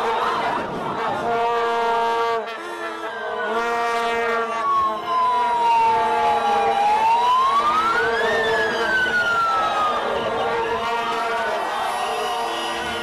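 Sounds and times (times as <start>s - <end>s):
vuvuzelas droning: 0.0s - 6.8s, 7.5s - 13.0s
siren wailing: 3.0s - 13.0s.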